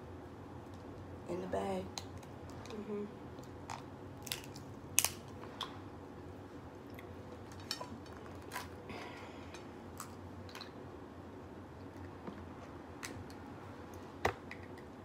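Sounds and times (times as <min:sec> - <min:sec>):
crab shells cracking: 0:03.4 - 0:05.3.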